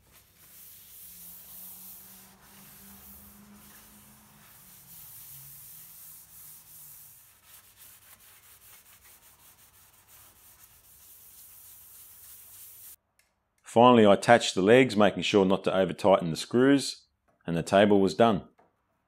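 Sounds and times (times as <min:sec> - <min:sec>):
rag rubbing wood tabletop: 0:00.0 - 0:13.0.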